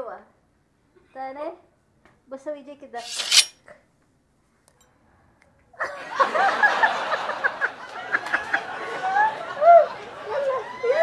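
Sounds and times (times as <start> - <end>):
women laughing: 5.8 - 11.0.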